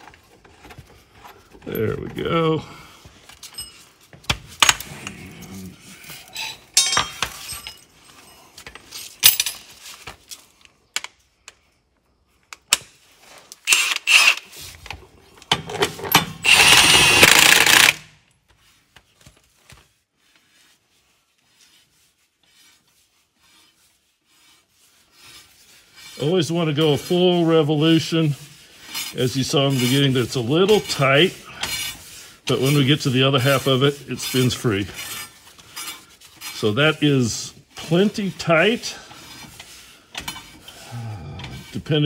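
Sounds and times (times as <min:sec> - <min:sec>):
metal clinks and knocks: 0:03.3 - 0:04.9, 0:06.3 - 0:09.8
cordless impact wrench running: 0:13.7 - 0:14.5, 0:16.3 - 0:18.1.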